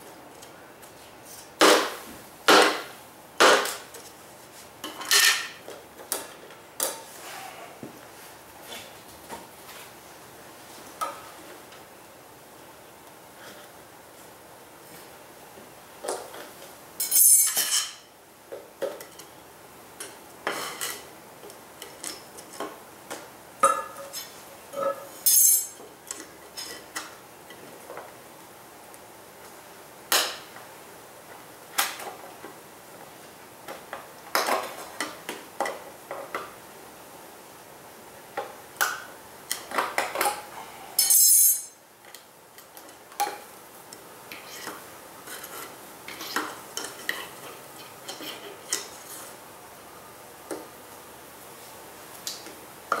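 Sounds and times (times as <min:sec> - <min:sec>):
metal hive tool clinking and scraping: 0:17.0 - 0:18.0, 0:24.0 - 0:26.7, 0:41.0 - 0:41.8.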